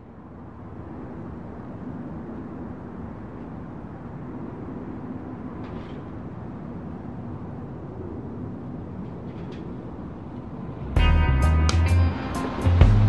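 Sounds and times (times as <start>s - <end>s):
low outdoor rumble: 0.0s - 13.0s
music with heavy beat: 11.0s - 13.0s.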